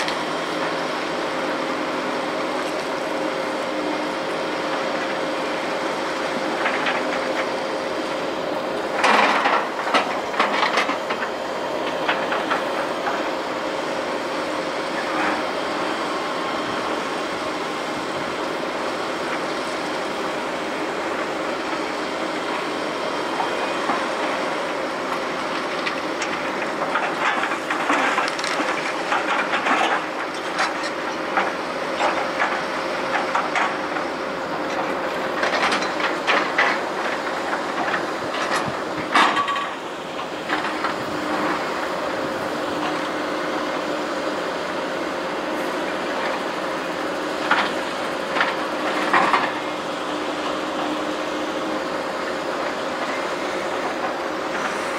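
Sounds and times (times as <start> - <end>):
diesel machinery running: 0.0 - 54.9
rubble and scrap clattering: 8.8 - 13.4, 23.3 - 43.1.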